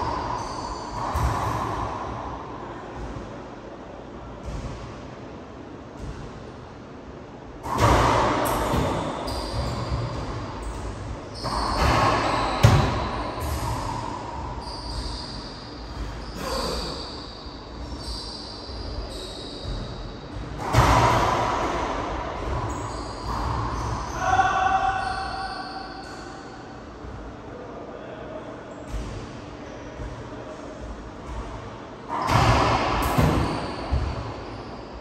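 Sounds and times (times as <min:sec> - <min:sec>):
racquet hitting ball: 0:07.6 - 0:16.2, 0:19.6 - 0:25.0, 0:32.1 - 0:34.5.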